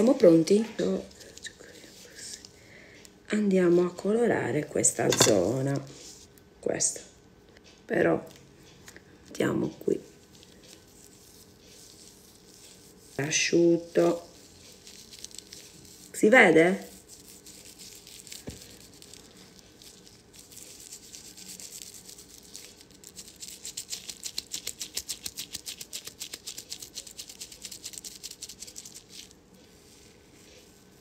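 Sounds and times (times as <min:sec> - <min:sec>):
fingers rubbing hair rustling: 0:00.0 - 0:02.6, 0:09.5 - 0:31.0.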